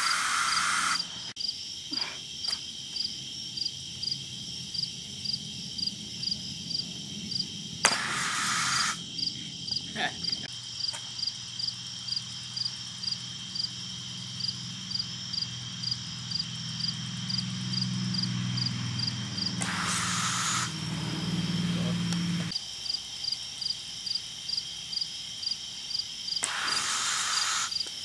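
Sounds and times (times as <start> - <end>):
rush of hiss: 0.0 - 1.3, 7.8 - 9.0, 19.6 - 20.8, 26.4 - 27.8
crickets chirping: 0.0 - 28.0
low hum: 13.8 - 22.5.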